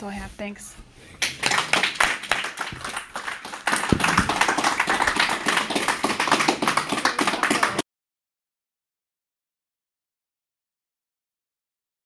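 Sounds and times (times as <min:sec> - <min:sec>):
crowd applauding: 0:01.2 - 0:07.8.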